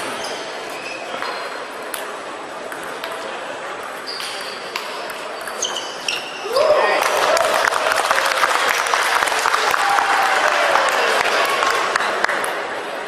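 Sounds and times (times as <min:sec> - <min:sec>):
short high squeak: 0:00.0 - 0:01.5, 0:05.4 - 0:06.4
sports hall background noise: 0:00.0 - 0:13.0
table tennis balls clicking: 0:02.6 - 0:06.2.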